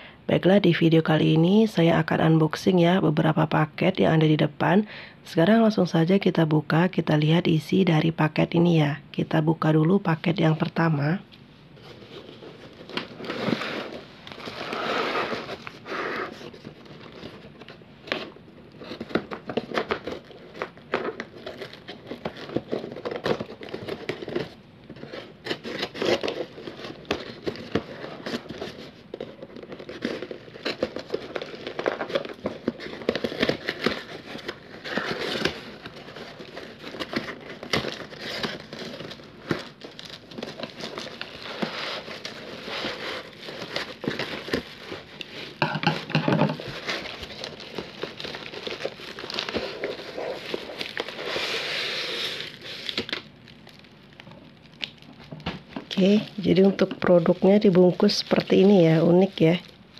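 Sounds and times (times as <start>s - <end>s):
cardboard rustling: 11.6s - 53.4s
paper wrapping crackling: 11.8s - 59.9s.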